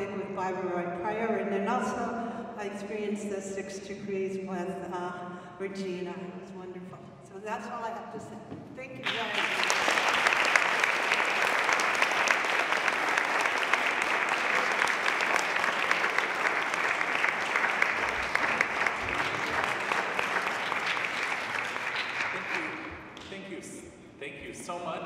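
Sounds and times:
audience applauding: 9.0 - 23.3.

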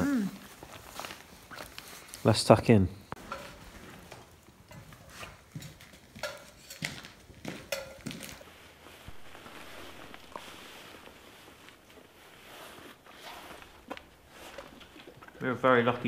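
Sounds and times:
cutlery and cookware clinking: 3.2 - 3.8, 6.1 - 8.4.

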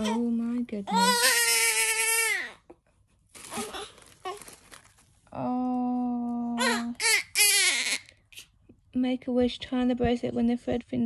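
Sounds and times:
newborn baby crying: 0.0 - 2.8, 6.6 - 8.5
gift packaging rustling and tearing: 3.2 - 5.3.

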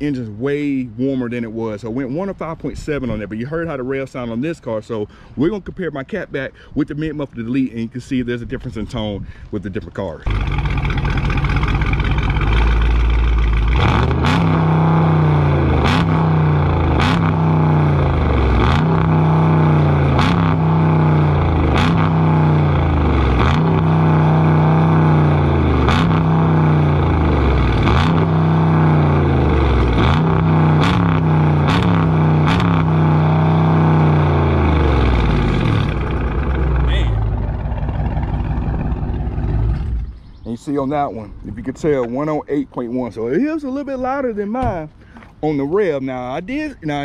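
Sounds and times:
sharp exhaust snap: 10.2 - 40.2
engine idling and revving: 10.2 - 40.4.

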